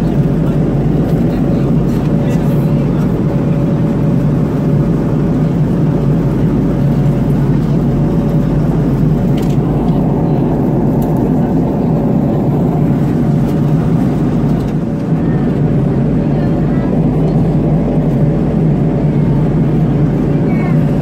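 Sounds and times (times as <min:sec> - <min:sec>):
aircraft cabin engine rumble: 0:00.0 - 0:21.0.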